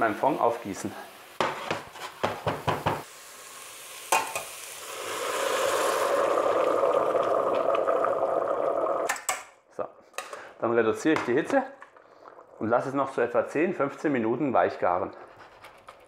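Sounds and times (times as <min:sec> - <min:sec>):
liquid hissing in hot pot: 0:00.2 - 0:09.1
spoon scraping in metal pot: 0:01.4 - 0:02.3.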